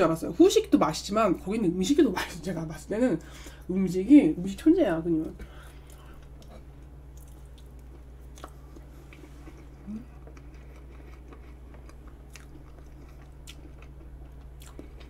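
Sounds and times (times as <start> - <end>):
low electrical hum: 0.0 - 15.0
soft chewing: 5.4 - 15.0
person humming: 9.8 - 10.2.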